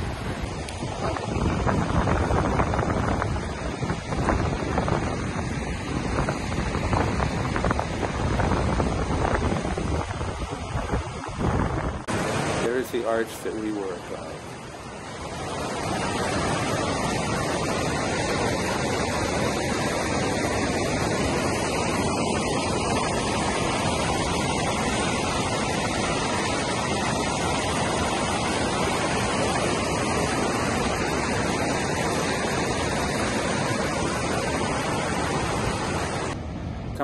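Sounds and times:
stream splashing over rocks: 12.0 - 36.4.

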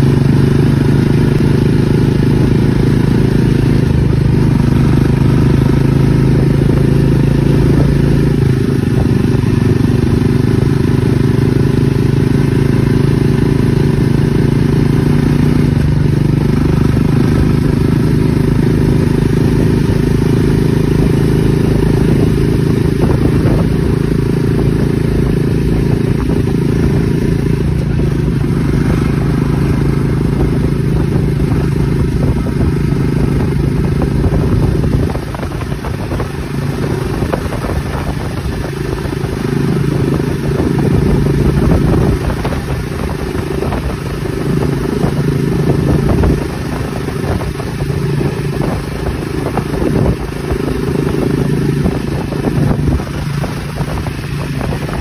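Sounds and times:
motorcycle engine running: 0.0 - 55.0
wind noise on microphone: 0.0 - 55.0.

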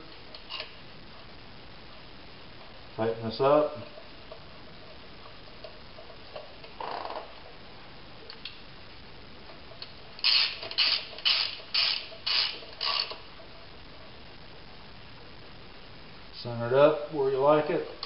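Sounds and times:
ratchet wrench clicking: 10.2 - 13.2.

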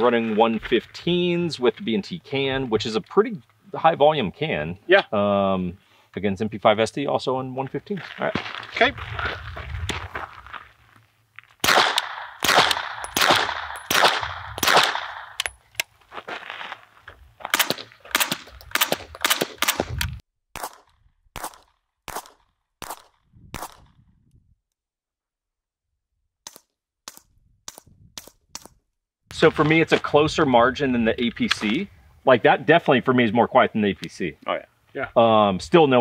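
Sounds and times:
loud gunshots with sharp crack: 11.6 - 15.4, 17.5 - 20.0, 20.6 - 24.0
quieter dull suppressed gunshots: 11.6 - 15.5, 17.5 - 24.1.

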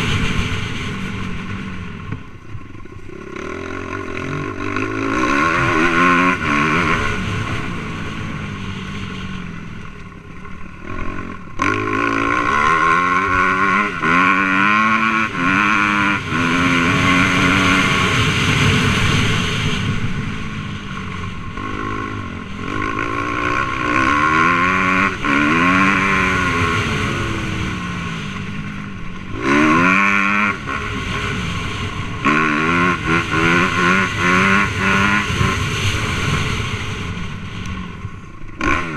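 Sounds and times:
motorcycle engine revving: 0.0 - 38.9.

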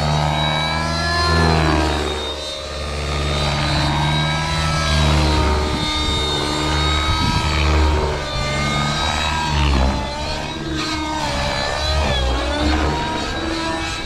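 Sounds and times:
model helicopter engine whining: 0.0 - 14.0.

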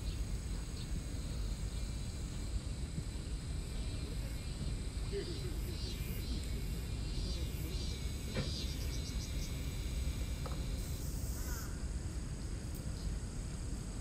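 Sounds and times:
faint insect chirps: 0.0 - 14.0
faint bird chirps: 5.1 - 9.7.

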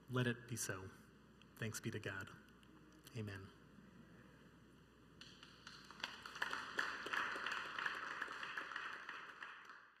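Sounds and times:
hands clapping: 5.2 - 10.0.

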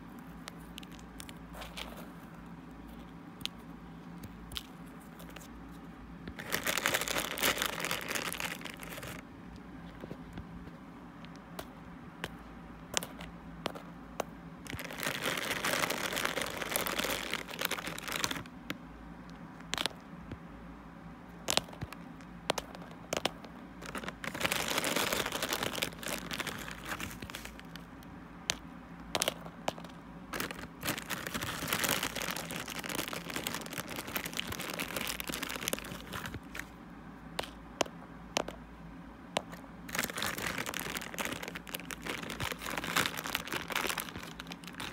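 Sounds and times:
crunchy crinkly rustling: 0.0 - 10.8, 14.6 - 18.5, 21.4 - 28.6, 29.2 - 36.8, 39.5 - 44.9.

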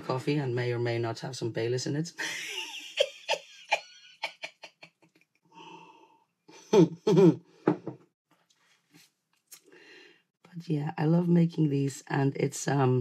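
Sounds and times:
woman laughing softly: 2.2 - 5.0.

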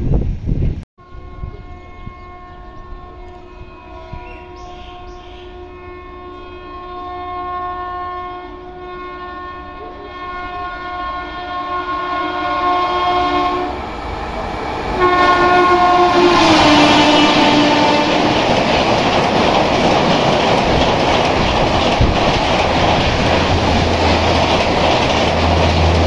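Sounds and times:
train horn blasts: 1.0 - 19.1, 25.3 - 26.0
train wheels rushing on track: 12.3 - 26.0.

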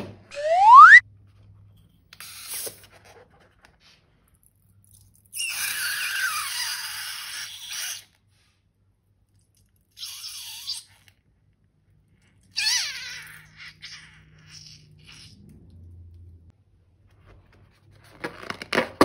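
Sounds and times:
rubber balloon squeaking: 0.3 - 1.0
air hissing with falling whistle: 0.4 - 1.0.

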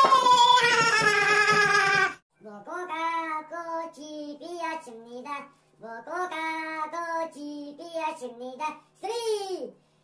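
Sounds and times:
child singing: 2.4 - 9.7.

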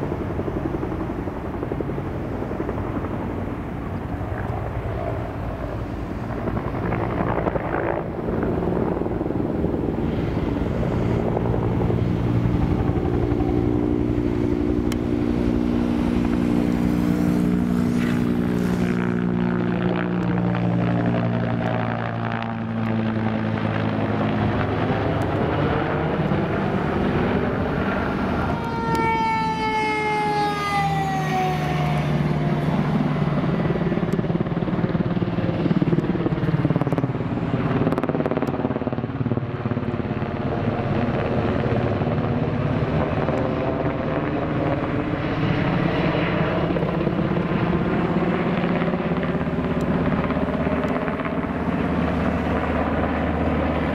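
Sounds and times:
diesel engine running low: 0.0 - 45.3
helicopter passing overhead: 0.0 - 53.9
fire engine siren: 4.7 - 38.4.

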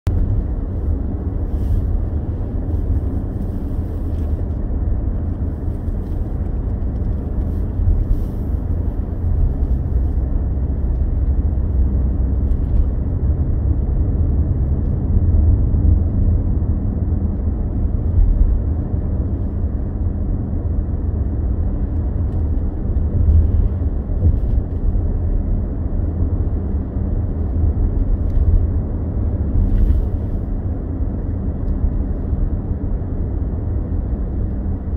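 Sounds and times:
car driving on road: 0.0 - 34.9.

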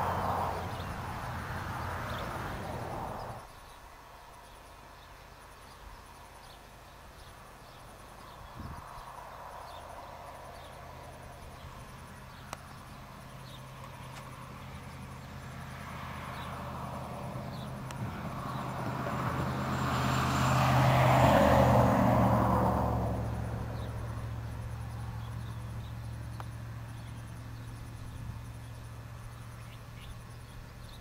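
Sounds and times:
high-pitched insect chirping: 22.9 - 31.0.

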